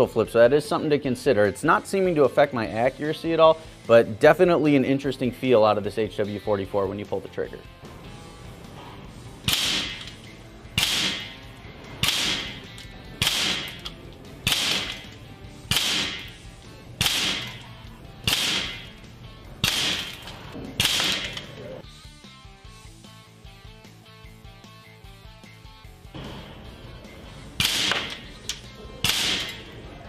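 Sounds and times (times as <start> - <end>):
faint background music: 0.0 - 30.0
air pistol shots: 9.4 - 19.0, 19.6 - 21.6, 27.6 - 29.8.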